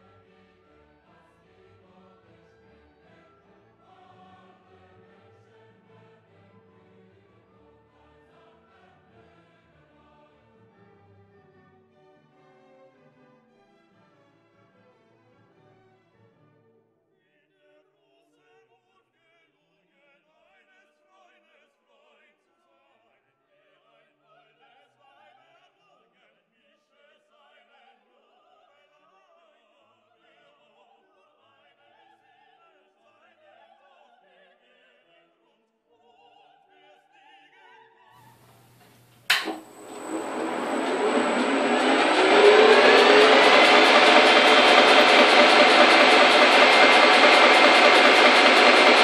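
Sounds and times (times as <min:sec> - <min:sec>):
opera singing with orchestra: 0:01.0 - 0:10.5
sharp click: 0:39.3 - 0:39.7
milling machine whining: 0:39.3 - 0:49.0.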